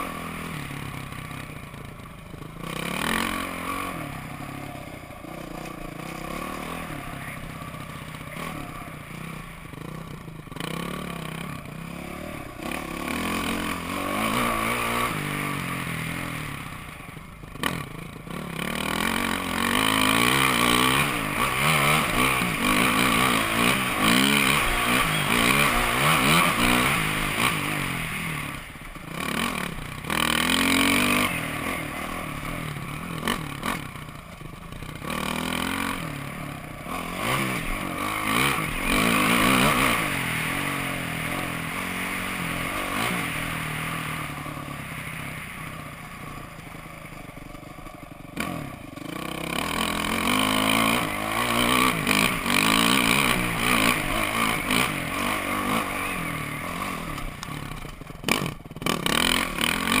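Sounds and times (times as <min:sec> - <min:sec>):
dirt bike engine revving: 0:00.0 - 1:00.0
clatter: 0:05.2 - 0:15.2, 0:45.4 - 1:00.0.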